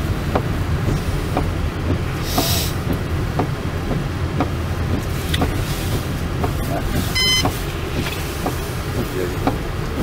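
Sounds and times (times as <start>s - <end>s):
engine and tyres rumbling: 0.0s - 10.0s
brief hiss: 2.2s - 2.8s.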